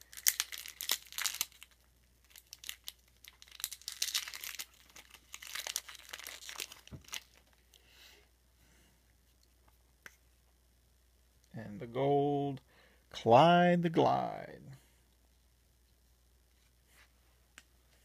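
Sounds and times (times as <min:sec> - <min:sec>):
wrapper tearing and crinkling: 0:00.0 - 0:07.6.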